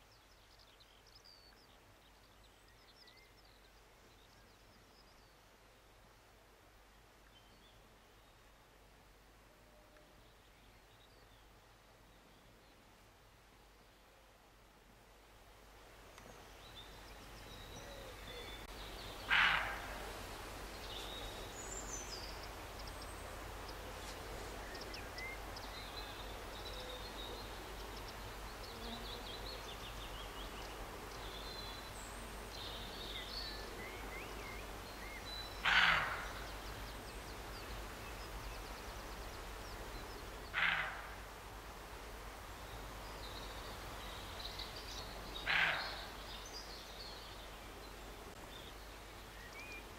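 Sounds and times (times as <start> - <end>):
deer barking: 19.3 - 20.0.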